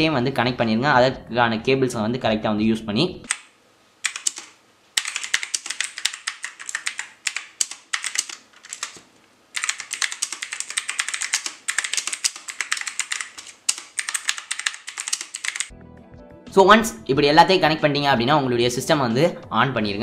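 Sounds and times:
mechanical keyboard typing: 3.3s - 15.7s.

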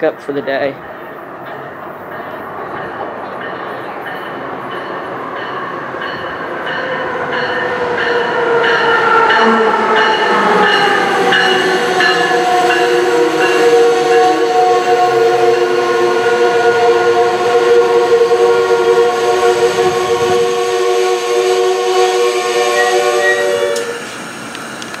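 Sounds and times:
train brakes squealing: 22.5s - 24.3s.

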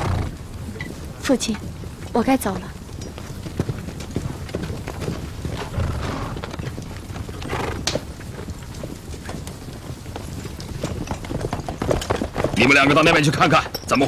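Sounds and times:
horse hooves clopping: 0.0s - 14.0s.

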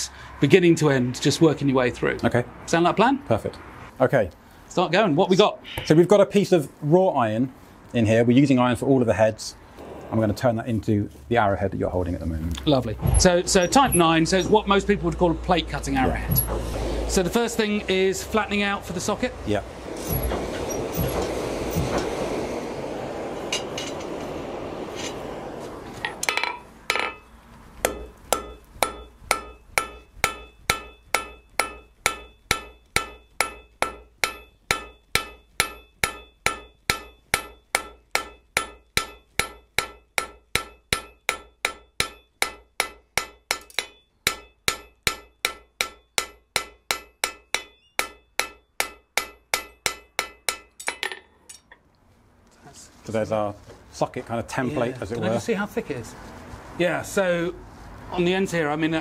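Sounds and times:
hammer striking iron on anvil: 26.0s - 51.8s.

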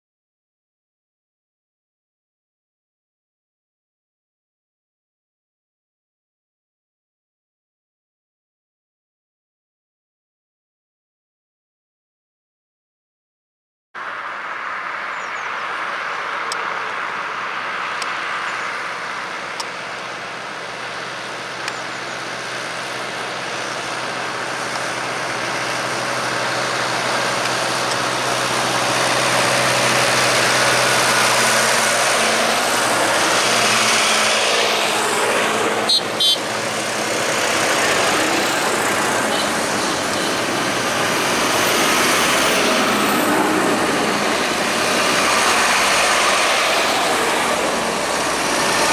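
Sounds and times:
tractor diesel engines: 14.0s - 48.9s.

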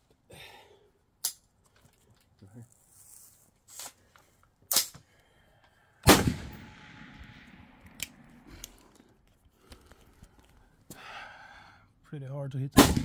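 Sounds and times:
rifle shot with echo: 6.0s - 8.5s, 12.8s - 13.0s.

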